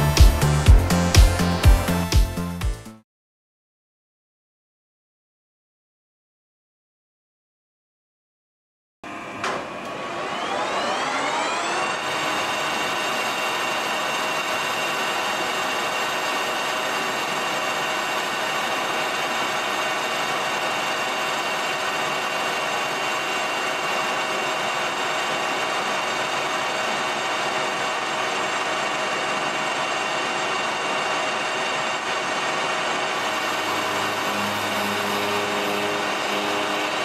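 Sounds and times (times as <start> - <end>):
lathe tool cutting metal: 9.1 - 37.0
lathe whining: 9.1 - 37.0.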